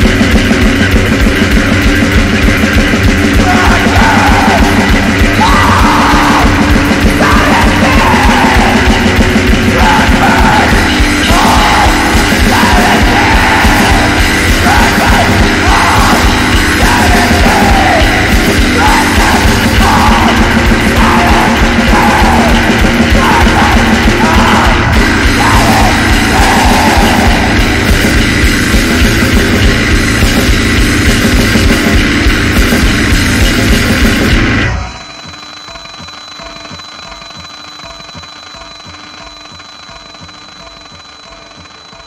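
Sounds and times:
harsh vocals: 0.0 - 35.0
fast dense drumming: 0.0 - 38.3
distorted guitars: 0.0 - 42.0.

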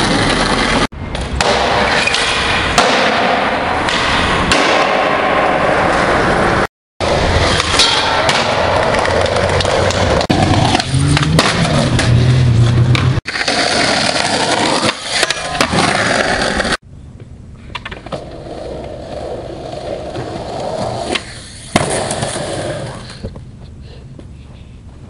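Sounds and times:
skateboard wheels rolling on concrete: 0.0 - 25.0
skateboard clacks: 7.4 - 12.2.

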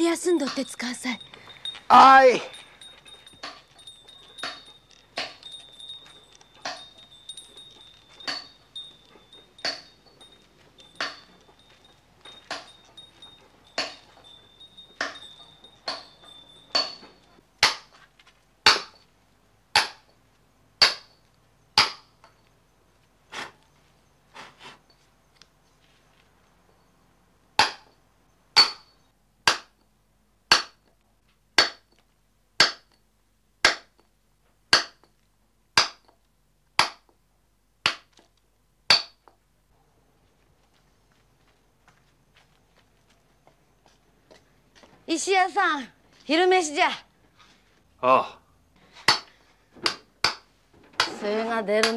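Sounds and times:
hammer striking chisel into stone: 3.4 - 5.6, 8.2 - 8.6, 9.6 - 10.2, 11.0 - 11.3, 13.7 - 14.1, 15.0 - 16.1, 16.7 - 17.9, 18.6 - 19.0, 19.8 - 20.1, 20.8 - 21.2, 21.8 - 22.1, 27.6 - 28.0, 28.6 - 29.8, 30.5 - 30.9, 31.6 - 32.0, 32.6 - 33.0, 33.6 - 34.1, 34.7 - 35.1, 35.8 - 36.2, 36.8 - 37.1, 37.8 - 38.2, 38.9 - 39.4, 49.1 - 51.2.

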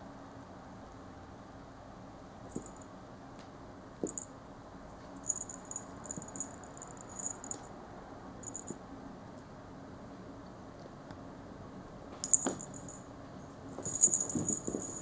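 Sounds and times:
cat collar bell jingling: 2.5 - 2.8, 5.2 - 7.6, 8.4 - 8.8, 12.2 - 13.0, 13.8 - 15.0.

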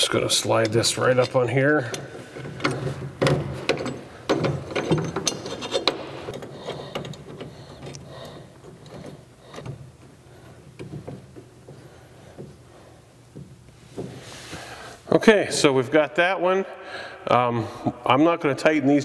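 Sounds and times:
metal bracket clicking and scraping: 0.5 - 8.0.

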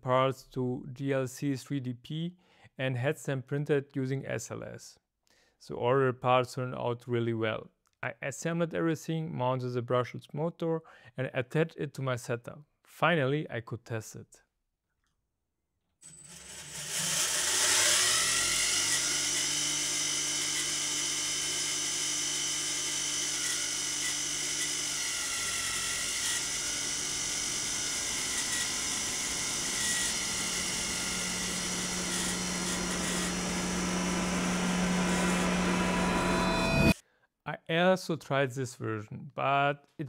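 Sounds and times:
motor whining with gear whir: 16.1 - 37.0
low hum: 30.2 - 37.0.

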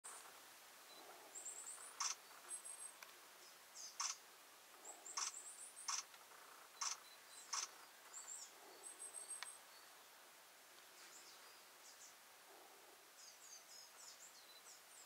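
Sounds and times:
high-pitched small bird calls: 0.9 - 4.2, 4.8 - 10.0
sharp clicks: 1.9 - 2.2, 4.0 - 4.2, 5.2 - 6.2, 6.8 - 7.8.

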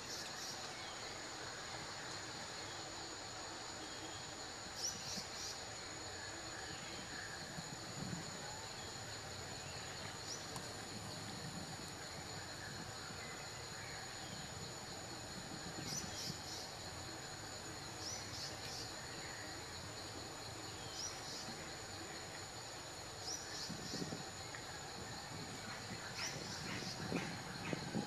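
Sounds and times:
insects buzzing: 0.0 - 28.0.

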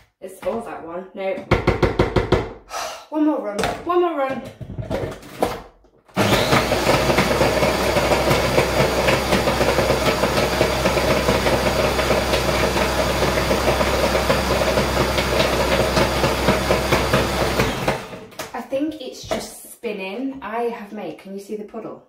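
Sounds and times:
blender running on ice: 6.2 - 18.4.

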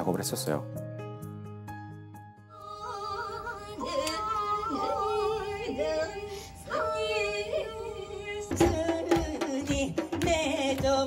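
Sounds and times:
held drone tones: 2.5 - 9.1
woman singing with vibrato: 2.5 - 11.0.

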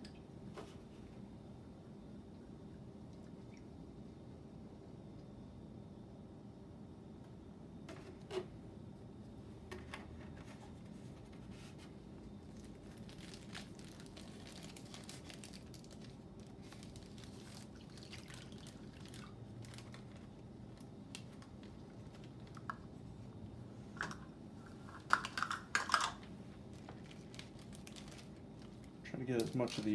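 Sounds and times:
milk pouring into bag: 12.5 - 22.4, 27.0 - 29.9
plastic bag crinkling: 12.5 - 22.6, 26.7 - 29.9.

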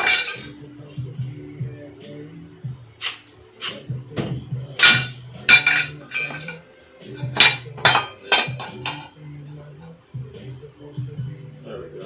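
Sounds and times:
steel bar clanking on metal: 0.0 - 0.5, 4.8 - 6.6, 7.2 - 9.1.

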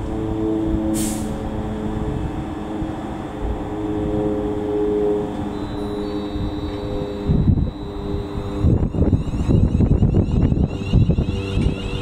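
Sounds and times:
electric train hum: 0.0 - 12.0
short hiss: 1.0 - 1.3.

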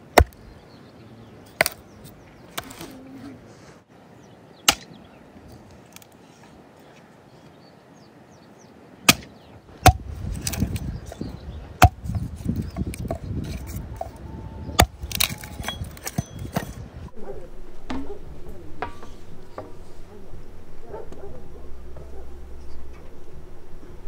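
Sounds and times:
rustling and handling noise: 14.9 - 23.4.

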